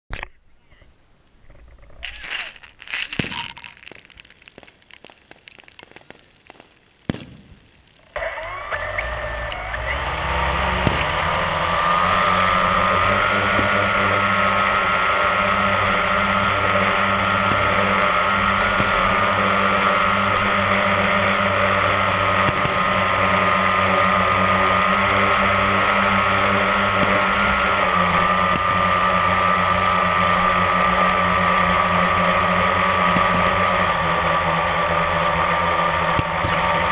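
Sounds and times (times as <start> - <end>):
drone propellers whining: 8.1 - 36.9.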